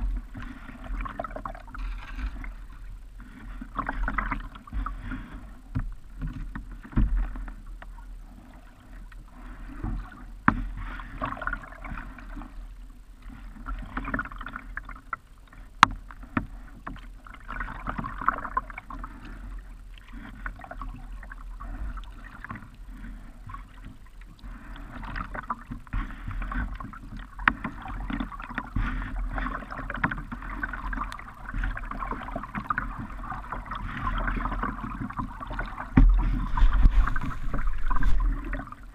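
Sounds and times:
paddle splashing in water: 0.0s - 38.9s
low rumble: 35.8s - 38.9s.

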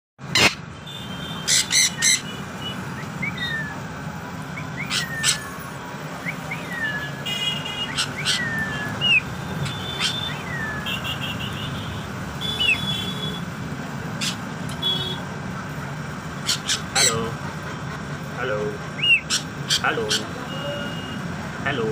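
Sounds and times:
parrot whistling: 1.4s - 3.9s, 4.5s - 11.2s, 12.4s - 13.0s, 14.2s - 14.4s, 16.4s - 17.3s, 19.0s - 21.2s.

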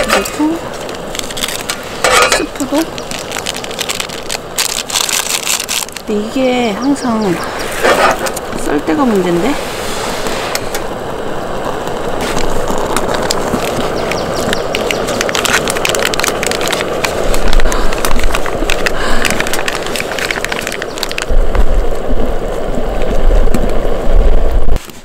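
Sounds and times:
clicks and crackles: 0.0s - 9.4s, 10.2s - 25.0s
wind buffeting microphone: 0.0s - 24.9s
pot simmering: 5.9s - 25.0s
gas burner hissing: 6.0s - 25.0s.

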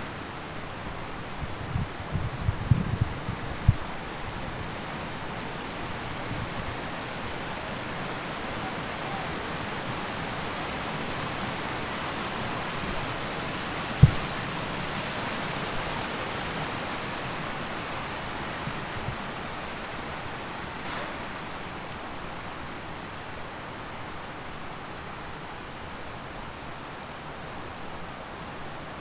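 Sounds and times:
rushing outdoor noise: 0.0s - 29.0s
dull thump: 14.0s - 14.4s.

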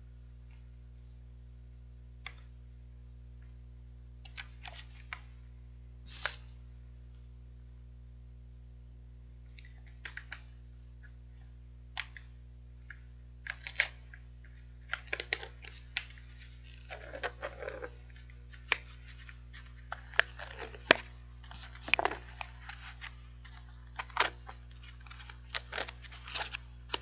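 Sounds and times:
plastic wrapper crinkling and tearing: 12.9s - 27.0s.

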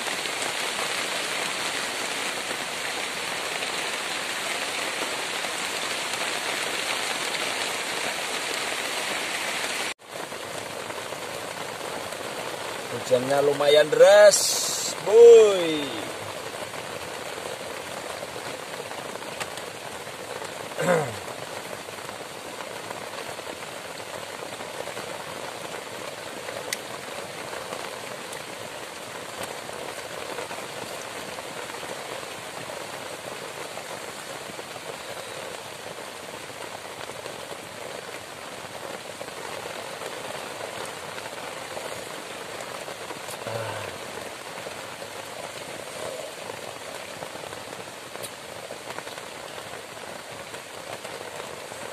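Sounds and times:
heavy rain on leaves and roof: 0.0s - 51.9s.

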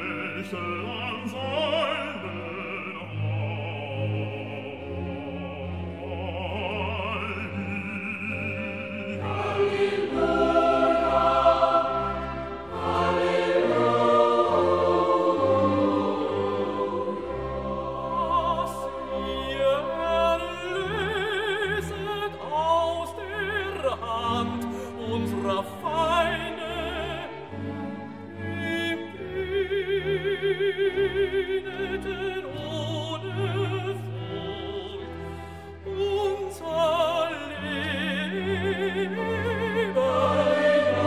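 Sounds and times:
voices singing with vibrato: 0.0s - 22.0s, 36.6s - 41.0s
orchestral accompaniment: 0.0s - 41.0s.

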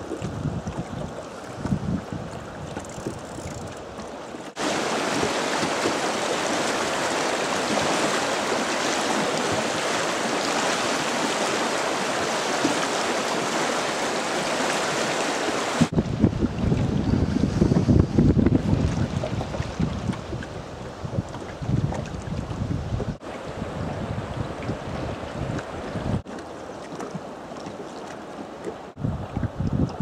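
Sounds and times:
wind buffeting microphone: 0.0s - 4.0s, 15.8s - 26.3s, 28.9s - 30.0s
river rushing over boulders: 4.3s - 16.0s.

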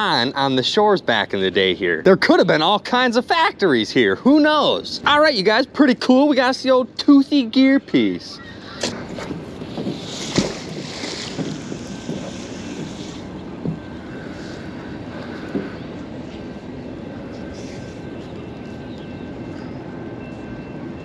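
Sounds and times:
magnet splashing into river: 9.9s - 11.8s.

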